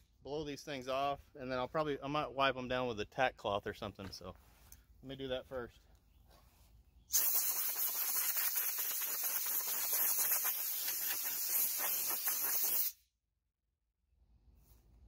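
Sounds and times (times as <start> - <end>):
compressed air blow gun hissing: 7.1 - 13.0.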